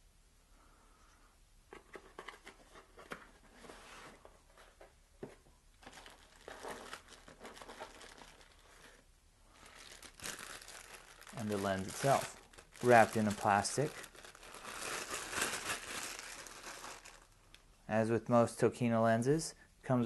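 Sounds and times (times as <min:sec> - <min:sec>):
packaging crinkling and rustling: 0:05.8 - 0:17.6.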